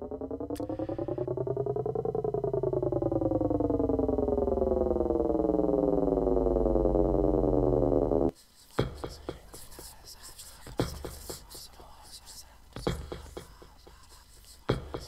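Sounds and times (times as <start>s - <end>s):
steady low drone: 0.0s - 8.3s
synthesizer tone pulsing rapidly: 0.0s - 8.3s.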